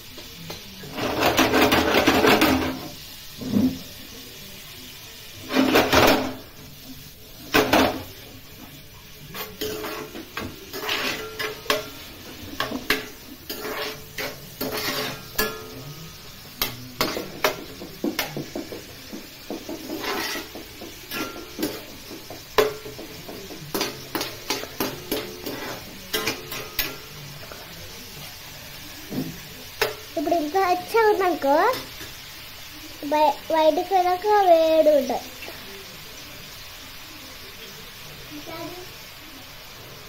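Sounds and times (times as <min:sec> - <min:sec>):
food mixed in a metal bowl: 0:00.0 - 0:04.0, 0:05.3 - 0:33.0.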